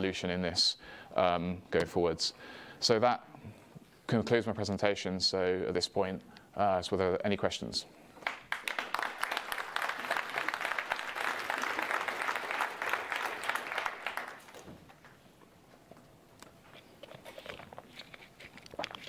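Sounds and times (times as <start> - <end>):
audience applauding: 8.2 - 15.1.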